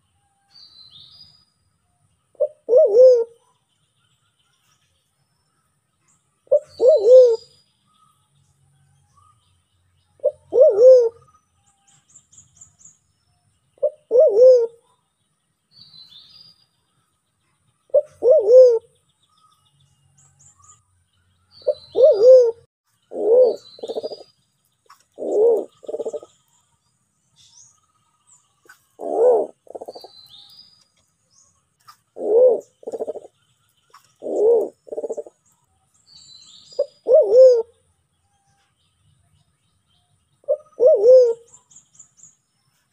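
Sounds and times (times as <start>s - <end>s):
faint high bird chirps: 0.0s - 42.9s
pigeon cooing: 2.4s - 3.4s, 6.5s - 7.5s, 10.2s - 11.2s, 13.8s - 14.8s, 17.9s - 18.9s, 21.6s - 24.3s, 25.1s - 26.3s, 29.0s - 30.1s, 32.2s - 33.3s, 34.2s - 35.4s, 36.8s - 37.7s, 40.5s - 41.5s.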